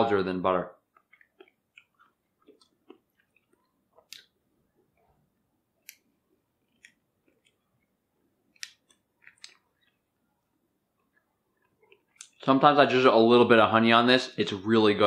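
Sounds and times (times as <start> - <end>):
soft chewing: 0.8 - 12.4.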